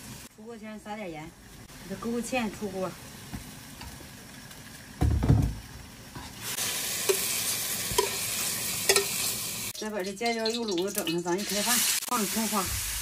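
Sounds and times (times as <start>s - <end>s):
food sizzling in a wok: 0.0s - 13.0s
metal spatula clinking on wok: 8.9s - 9.2s.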